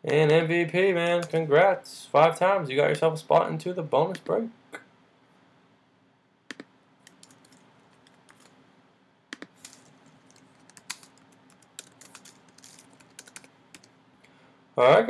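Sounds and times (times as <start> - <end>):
typing on a keyboard: 6.5 - 8.5, 9.4 - 13.9.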